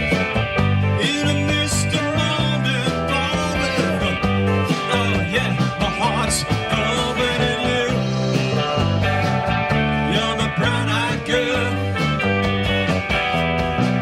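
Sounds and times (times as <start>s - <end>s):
bass guitar: 0.0s - 14.0s
drums: 0.0s - 14.0s
electric guitars: 0.0s - 14.0s
guitar bending notes: 0.0s - 14.0s.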